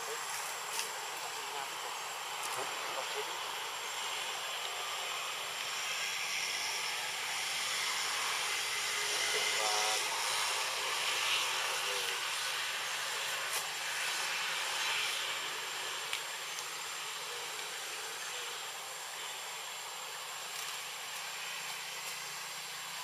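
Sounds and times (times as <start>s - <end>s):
forest ambience hiss: 0.0s - 23.0s.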